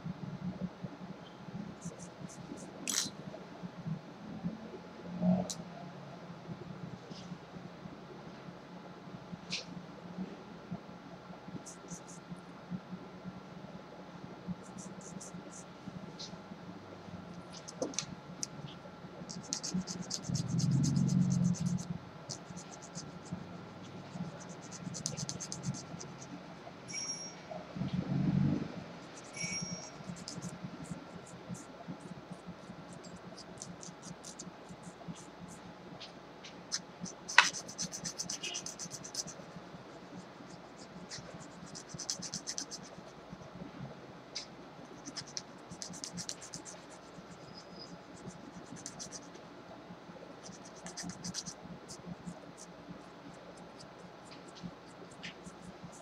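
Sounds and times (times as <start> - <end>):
nail file rasping on fingernails: 14.6 - 15.6, 17.5 - 18.5, 19.3 - 26.4, 29.1 - 35.6, 36.7 - 43.1, 44.9 - 49.4, 50.4 - 52.7.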